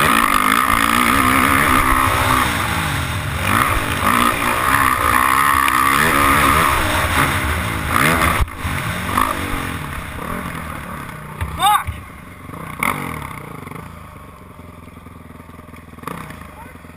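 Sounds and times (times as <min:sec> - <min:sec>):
dirt bike engine revving: 0:00.0 - 0:16.9.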